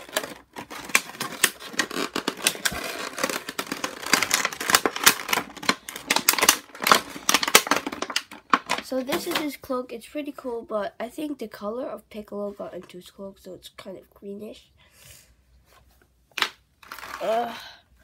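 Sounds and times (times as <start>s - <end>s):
plastic bag crinkling: 0.0s - 9.4s, 16.8s - 17.3s.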